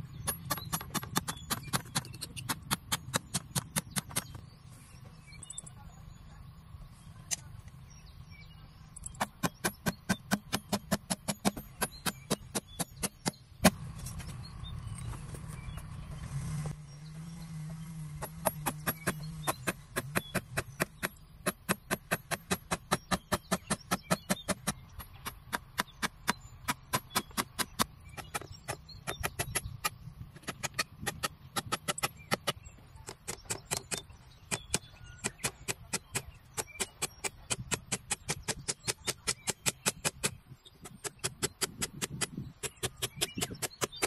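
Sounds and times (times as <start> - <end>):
hammer tapping nails into bamboo: 0.3 - 4.4, 9.2 - 13.8, 18.2 - 44.0.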